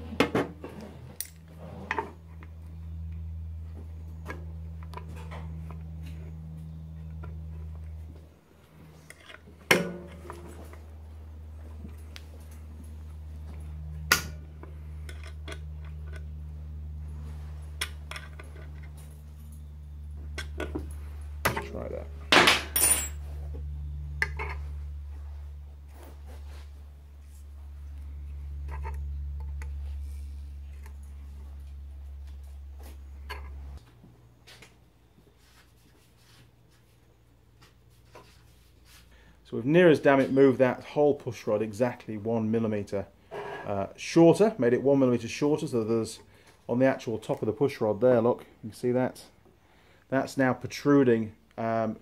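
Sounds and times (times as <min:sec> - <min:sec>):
steady low hum: 0:00.0 - 0:52.0
metal parts being handled: 0:20.3 - 0:23.2.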